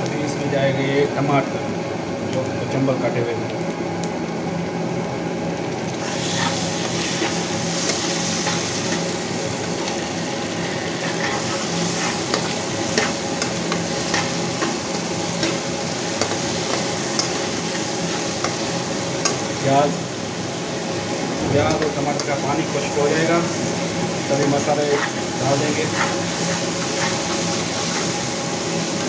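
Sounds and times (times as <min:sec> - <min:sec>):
onions sizzling in oil: 0:03.4 - 0:29.0
metal spoon scraping a pan: 0:06.2 - 0:09.1, 0:11.0 - 0:15.6, 0:24.3 - 0:28.2.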